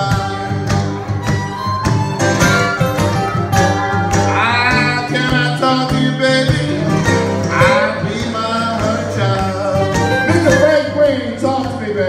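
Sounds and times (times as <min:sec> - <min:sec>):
strummed and picked guitars: 0:00.0 - 0:12.0
harmonica bent notes: 0:00.4 - 0:11.2.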